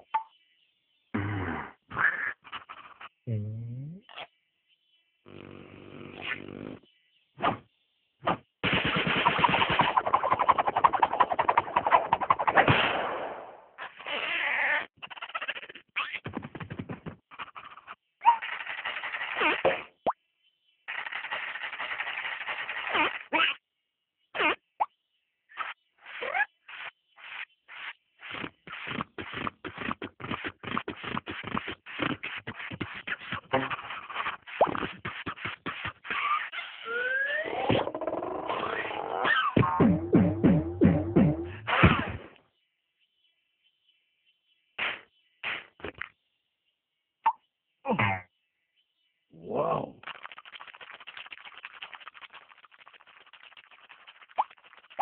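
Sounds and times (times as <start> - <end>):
cartoon straw slurps and puffs: 8.8 - 12.7, 13.8 - 20.0, 20.9 - 23.6, 24.4 - 24.6, 25.6 - 39.8, 44.8 - 46.1, 49.7 - 55.0.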